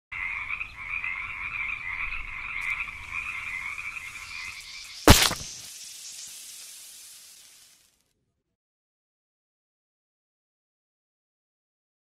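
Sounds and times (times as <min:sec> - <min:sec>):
frogs croaking: 0:00.1 - 0:06.2
sharp loud crack: 0:05.0 - 0:05.7.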